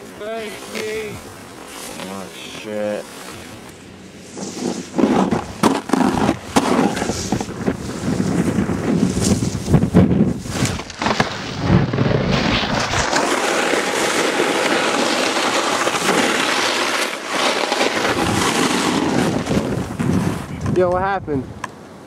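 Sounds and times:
snowboards scraping on snow: 0.0 - 20.5
wind on microphone: 3.4 - 16.4, 17.5 - 21.6.

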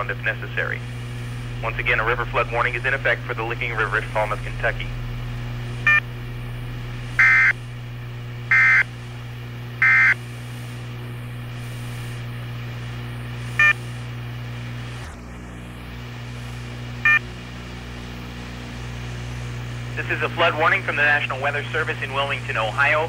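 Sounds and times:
radio hiss and hum: 0.0 - 23.0
buzzy digital data bursts: 0.6 - 9.0.

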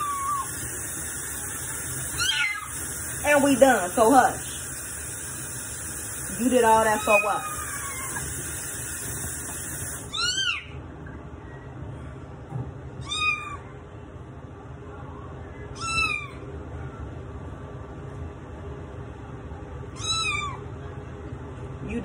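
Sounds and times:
running tap water: 0.0 - 10.2
kitten meowing loudly: 10.1 - 10.8, 15.8 - 16.4, 20.0 - 20.6.

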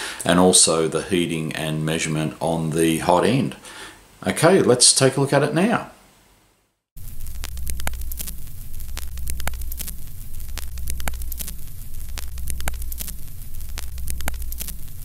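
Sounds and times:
crackly static: 0.0 - 15.0
low hum: 7.0 - 15.0
projector clicks: 7.3 - 15.0.

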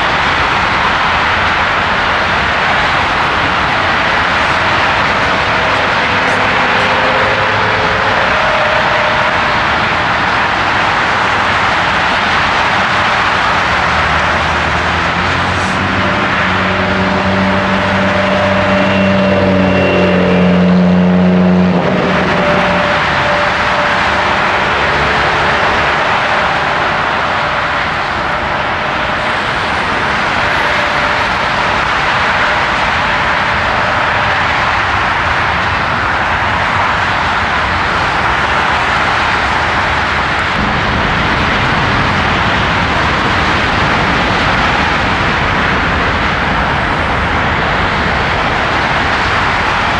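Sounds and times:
low engine hum: 0.0 - 36.2
jet airliners roaring: 0.0 - 49.9
road traffic: 0.0 - 49.9.

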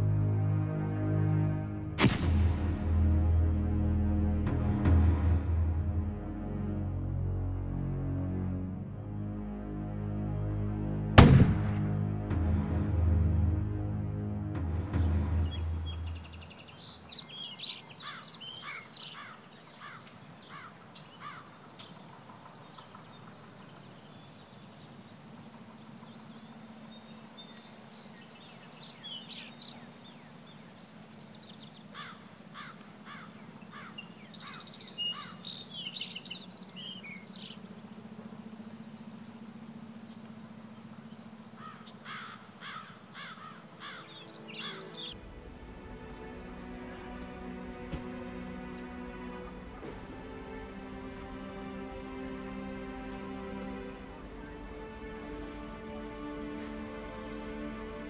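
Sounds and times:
steady low hum: 0.0 - 58.0
small birds chirping: 14.8 - 45.2.

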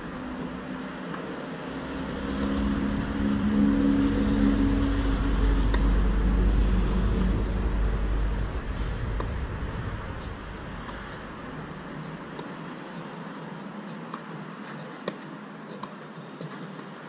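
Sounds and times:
vehicle engine running: 0.0 - 12.3.

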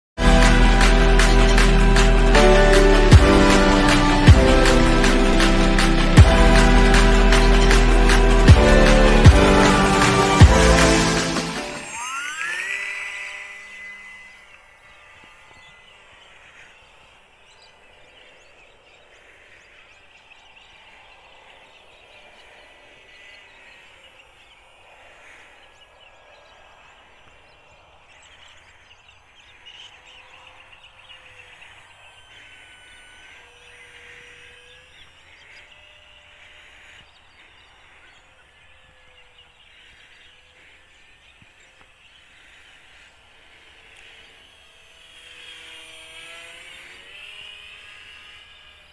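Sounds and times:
background music: 0.2 - 12.2
model plane electric motor whine: 0.2 - 48.9
steady outdoor hiss: 0.2 - 48.9.

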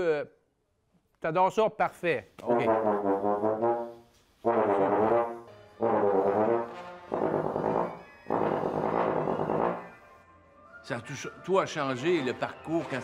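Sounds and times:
bass trombone long notes: 2.5 - 9.9.

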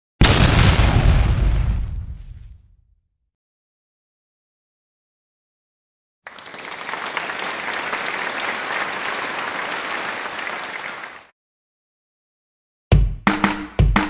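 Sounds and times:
crowd applause: 6.3 - 11.3.

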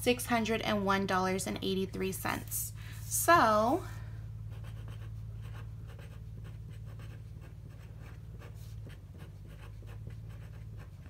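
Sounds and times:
low electrical hum: 0.0 - 11.0
pen scratching on paper: 4.5 - 11.0.

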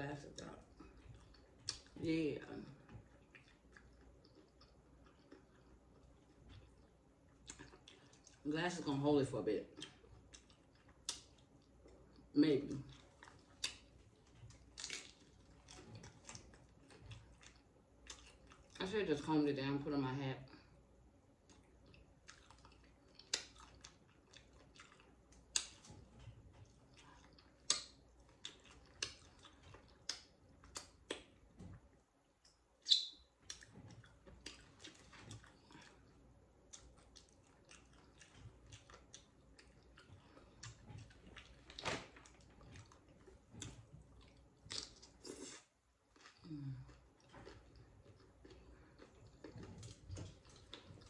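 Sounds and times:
chewing crunchy chips: 2.6 - 8.5, 9.7 - 18.9, 21.4 - 31.8, 33.4 - 51.0
wet mouth clicks: 27.6 - 28.0.

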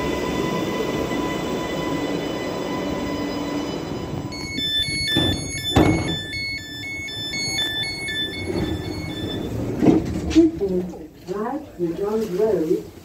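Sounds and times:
train door warning beeps: 1.7 - 10.2.

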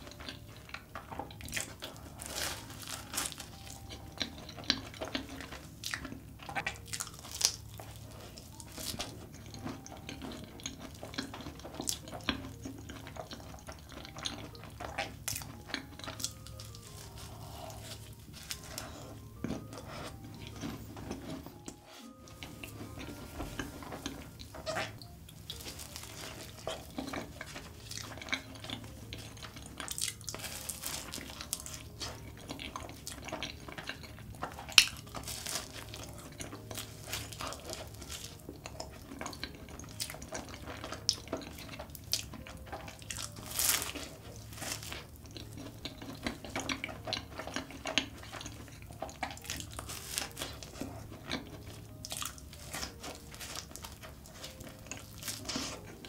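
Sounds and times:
biting crisp pastry: 0.0 - 21.6, 22.4 - 56.0
wet chewing: 0.0 - 56.0.

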